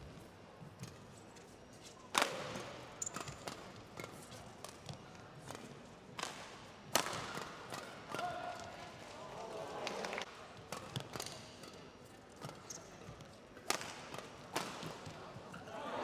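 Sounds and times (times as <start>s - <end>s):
badminton rackets hitting shuttlecock: 2.1s - 8.9s, 10.3s - 15.3s.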